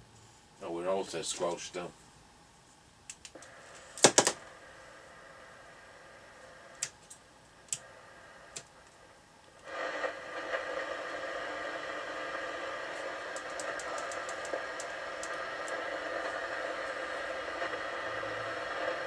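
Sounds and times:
radio static hiss: 0.0s - 19.0s.

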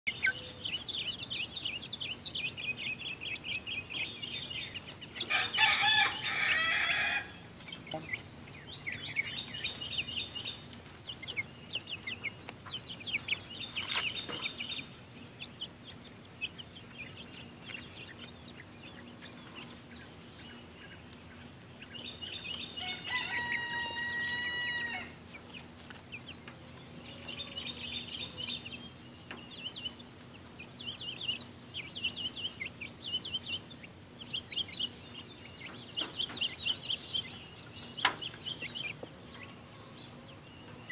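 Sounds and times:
long steady pitched call: 0.1s - 10.5s, 22.6s - 25.2s
chicks peeping and chirping: 0.1s - 40.9s
harsh chicken call: 5.3s - 7.4s, 22.8s - 25.2s.

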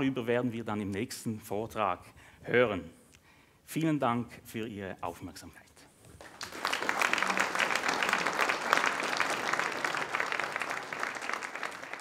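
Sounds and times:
audience applauding: 6.2s - 12.0s.

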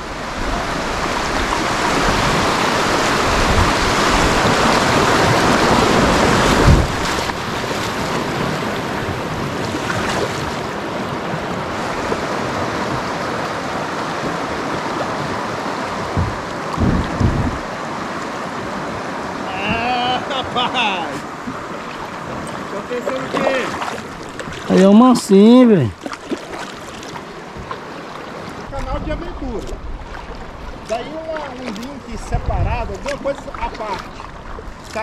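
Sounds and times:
rushing river water: 0.0s - 35.0s
low knocks: 16.1s - 17.7s.

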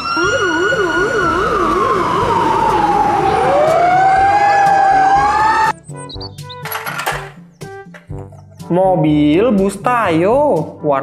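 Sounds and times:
fire engine siren: 0.0s - 5.8s.

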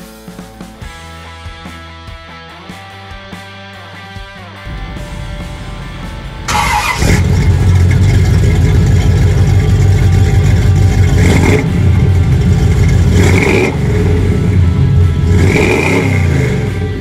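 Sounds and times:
car exhaust rumble with revs: 4.7s - 17.0s.

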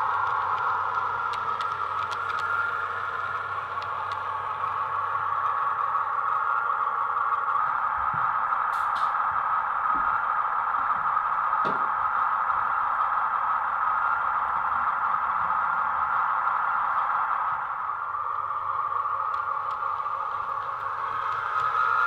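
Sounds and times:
model train running: 0.0s - 22.0s
faint clicks: 0.2s - 2.7s.

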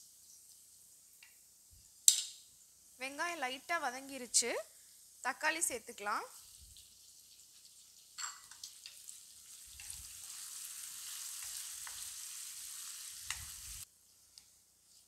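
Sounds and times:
vegetables sizzling in oil: 0.0s - 15.0s
wooden spatula scraping a pan: 9.7s - 15.0s.

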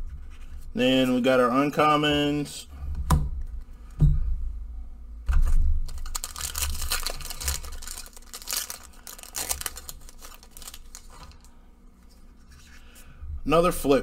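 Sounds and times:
foil wrapper crinkling and tearing: 5.8s - 11.6s.

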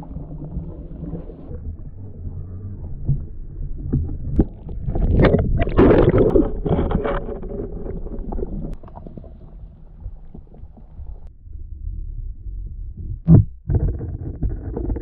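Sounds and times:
muffled underwater water churning: 0.0s - 15.0s.

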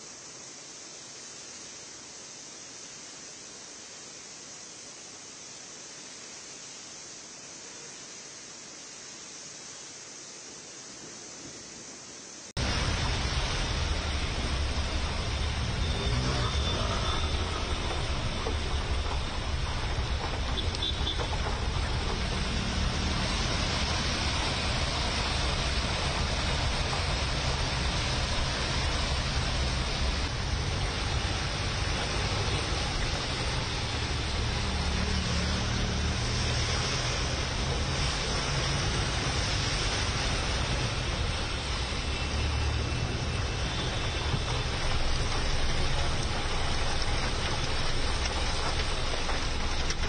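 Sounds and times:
heavy rain on road: 12.4s - 50.0s
cars driving through water: 12.6s - 50.0s
low traffic rumble: 12.6s - 50.0s.

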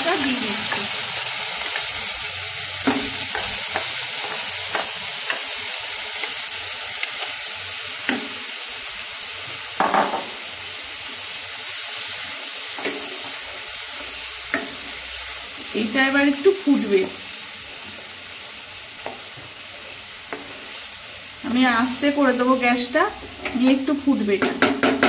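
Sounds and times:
spice paste sizzling in oil: 0.0s - 25.0s
spatula knocking against pan: 24.4s - 25.0s.

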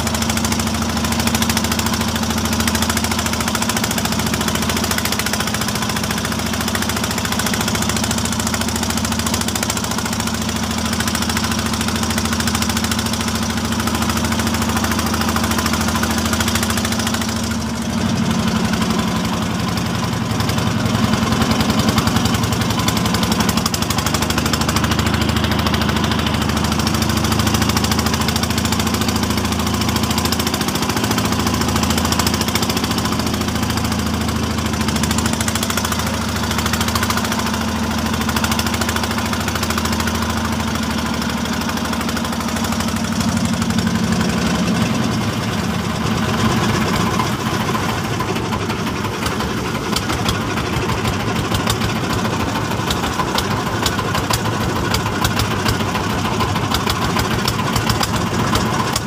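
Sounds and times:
boat engine knocking: 0.0s - 59.0s.

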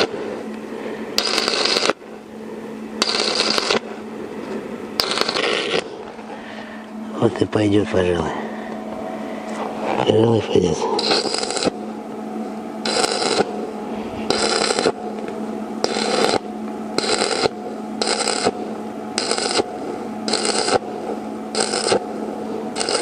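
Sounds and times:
welding arc crackling and hissing: 0.0s - 0.2s, 1.2s - 2.1s, 3.0s - 4.0s, 5.0s - 6.1s, 9.9s - 11.9s, 12.8s - 18.6s, 19.2s - 22.2s, 22.8s - 23.0s.

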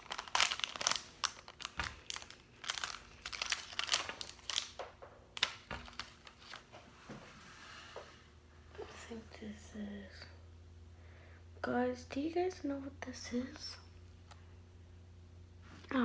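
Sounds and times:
plastic wrapping crinkling: 0.0s - 6.7s.

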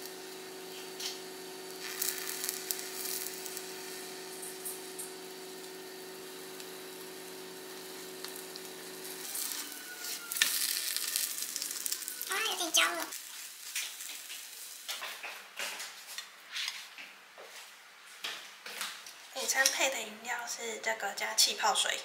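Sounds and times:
pan sizzling: 0.0s - 15.4s.

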